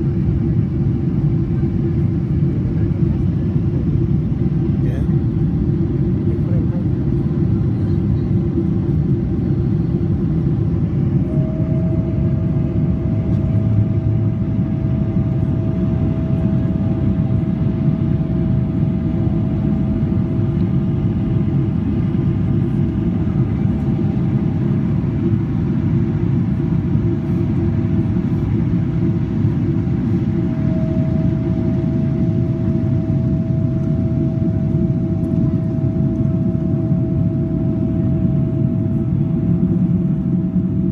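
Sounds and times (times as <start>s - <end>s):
jet engine cabin rumble: 0.0s - 40.9s
high whine: 9.9s - 25.9s, 29.1s - 39.5s.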